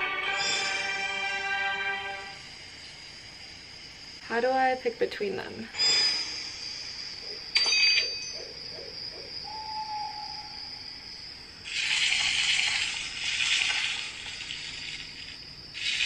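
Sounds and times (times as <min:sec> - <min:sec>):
shimmering whooshes: 0:05.7 - 0:08.4
high ringing tone: 0:05.7 - 0:10.8
hoot-like tone: 0:07.2 - 0:10.8.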